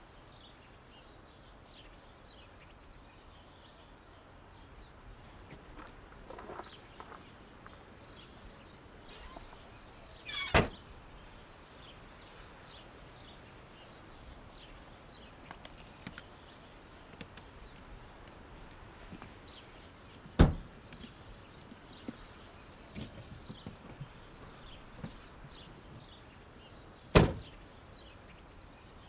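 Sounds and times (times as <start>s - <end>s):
car doors slamming shut: 10.4s - 10.8s, 20.3s - 20.7s, 27.1s - 27.5s.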